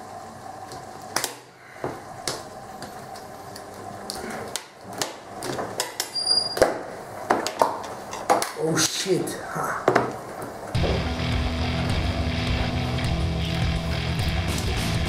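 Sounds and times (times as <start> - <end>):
high plastic squeak: 6.0 - 6.8.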